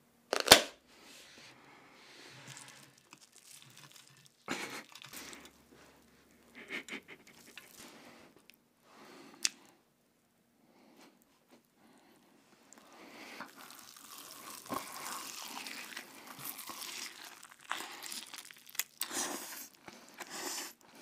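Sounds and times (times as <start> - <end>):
crumb coating crackling: 2.2 - 8.6, 12.6 - 20.1.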